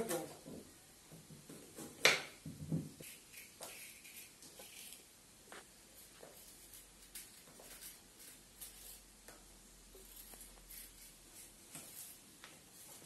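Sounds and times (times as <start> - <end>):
knife scraping carrot skin: 3.0 - 5.0, 6.0 - 9.1, 10.0 - 12.2.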